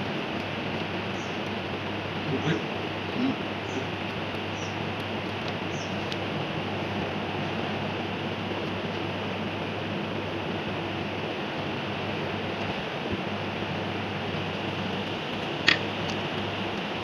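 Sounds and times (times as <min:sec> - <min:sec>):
sharp metallic click: 0:15.7 - 0:15.9.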